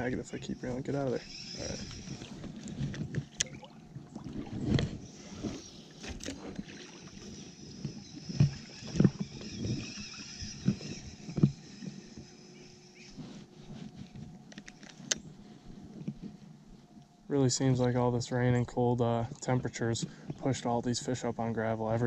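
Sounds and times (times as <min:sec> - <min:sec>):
river water sloshing and splashing: 0:01.3 - 0:11.8.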